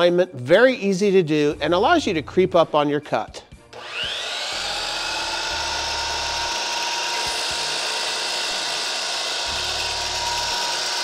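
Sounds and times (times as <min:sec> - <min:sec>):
miter saw motor whining: 0:03.7 - 0:11.0.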